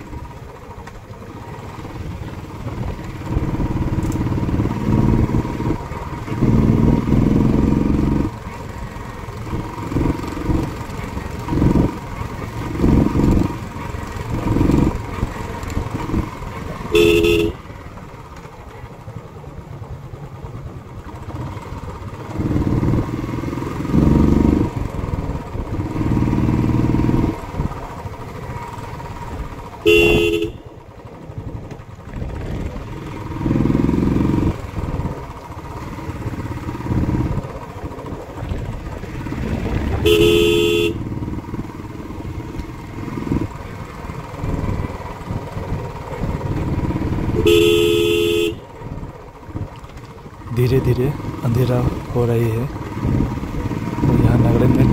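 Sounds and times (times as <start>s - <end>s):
motorcycle engine running: 0.0s - 54.9s
motorcycle horn honking: 16.8s - 17.8s, 29.8s - 30.8s, 40.0s - 41.2s, 47.3s - 48.7s.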